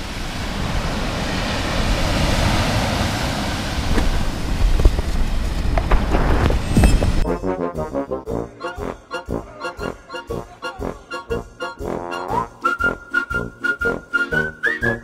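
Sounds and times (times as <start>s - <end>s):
waves on shingle beach: 0.0s - 6.8s
wind on microphone: 0.0s - 7.3s.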